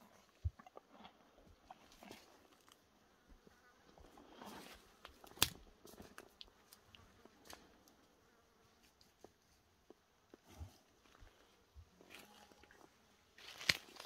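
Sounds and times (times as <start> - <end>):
horse chewing grass: 0.0 - 2.7.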